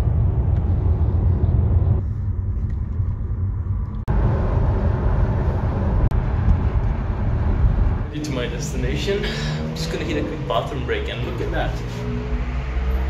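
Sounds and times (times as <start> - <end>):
engine and road rumble: 0.0 - 13.0.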